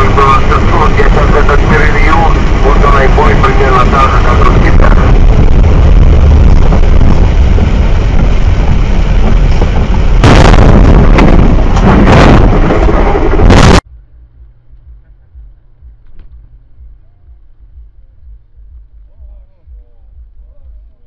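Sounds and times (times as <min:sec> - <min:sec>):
faint low hum: 0:13.9 - 0:21.0.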